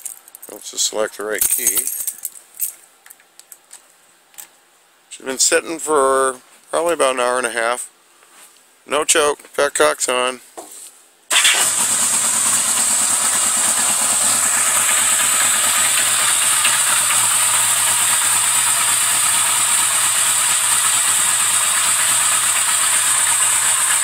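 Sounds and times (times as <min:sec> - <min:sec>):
motorcycle engine idling: 0:11.7 - 0:24.0.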